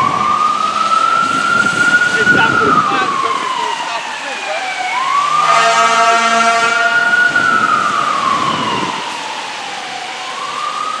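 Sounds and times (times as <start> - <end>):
fire engine siren wailing: 0.0 - 11.0
air horn blaring: 5.1 - 7.9.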